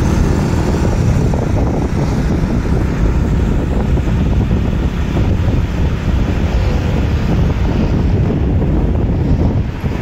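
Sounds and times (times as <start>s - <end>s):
road traffic: 0.0s - 10.0s
wind rushing over microphone: 0.0s - 10.0s.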